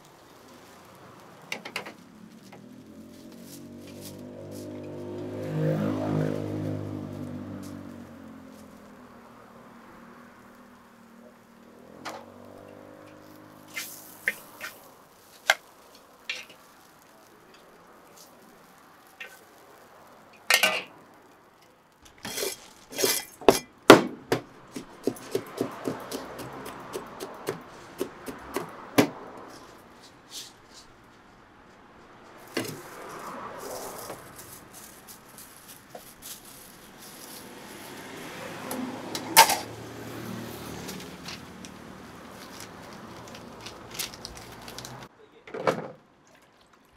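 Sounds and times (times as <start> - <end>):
wet squelches of sauce: 46.2 - 46.9.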